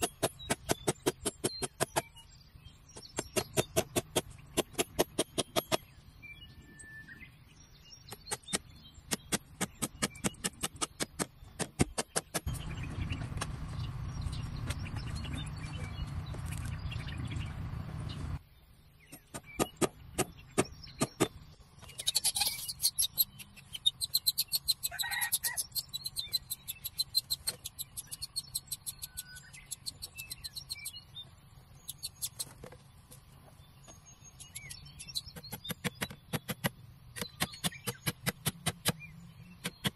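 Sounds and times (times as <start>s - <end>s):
low rumble: 12.5s - 18.4s
hammer tapping nails into bamboo: 35.4s - 39.0s.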